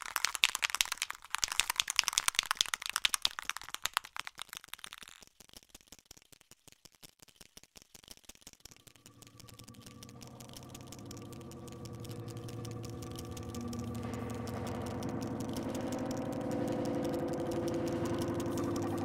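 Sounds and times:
spray can rattling: 0.0s - 9.6s
steady tones: 8.7s - 19.0s.

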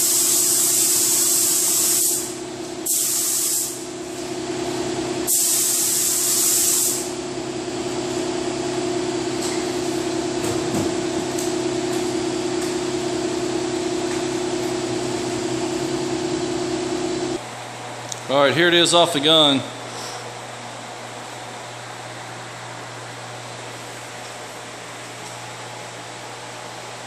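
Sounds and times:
paint spray gun hissing: 0.0s - 3.9s, 5.3s - 7.1s
ventilation fans humming: 0.0s - 27.0s.

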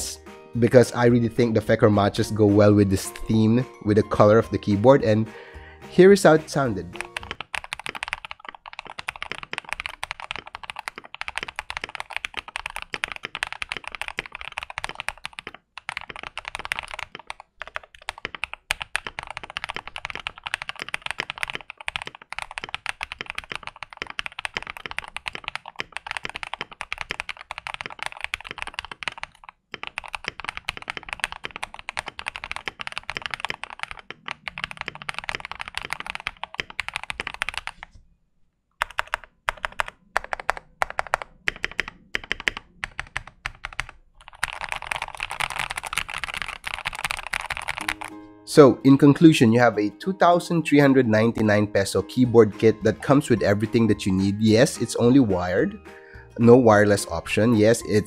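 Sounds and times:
fast typing on mechanical keyboard: 6.5s - 37.9s, 38.8s - 48.2s.

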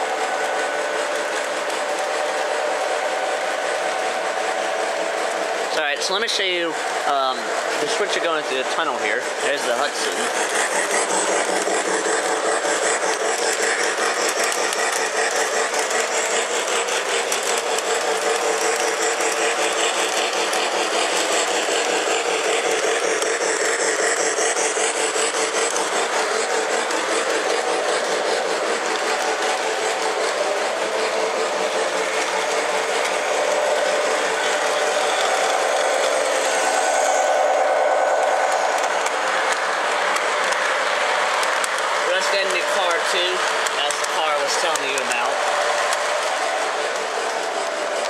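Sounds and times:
wheels rattling on rails: 0.0s - 48.0s
electric motor whir: 6.9s - 48.0s.

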